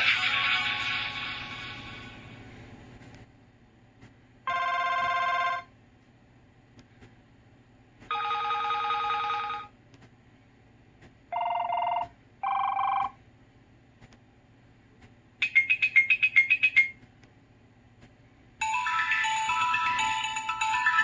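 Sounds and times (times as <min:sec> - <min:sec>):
phone ringtones: 0:04.5 - 0:05.7, 0:08.1 - 0:09.7, 0:11.4 - 0:13.2, 0:18.6 - 0:21.0.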